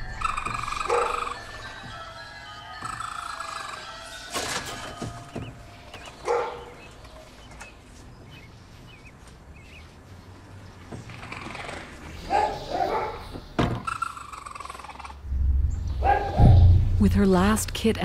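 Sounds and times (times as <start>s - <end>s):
sharp knock: 15.3s - 17.0s.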